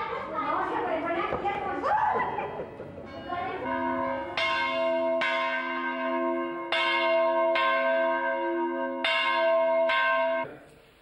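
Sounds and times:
church bell ringing: 3.1 - 10.6.

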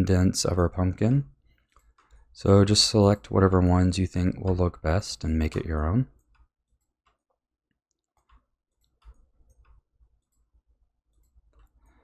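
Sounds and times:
computer mouse and keyboard clicks: 1.5 - 2.3, 5.4 - 12.0.

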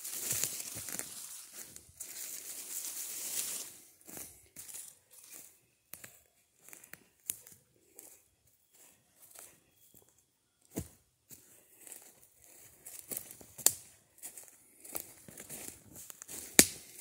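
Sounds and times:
footsteps crunching dry leaves: 0.0 - 10.0, 10.8 - 17.0.

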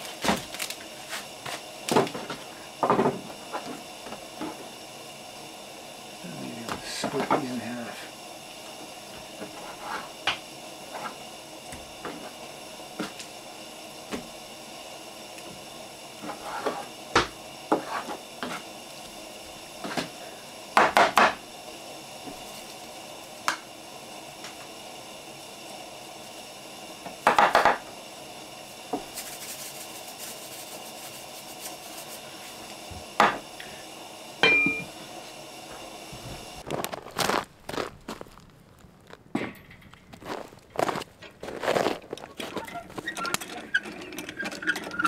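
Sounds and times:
shaker rattling: 29.1 - 32.2.

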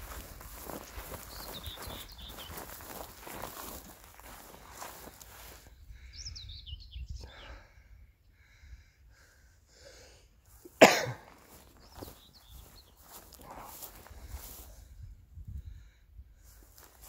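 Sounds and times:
small birds chirping: 0.0 - 8.6, 11.3 - 14.7
loud cough: 10.7 - 11.3.

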